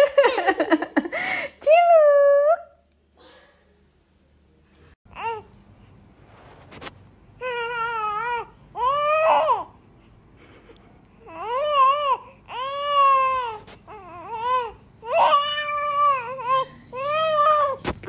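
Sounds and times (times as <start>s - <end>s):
baby crying: 7.4s - 9.8s, 11.3s - 17.8s.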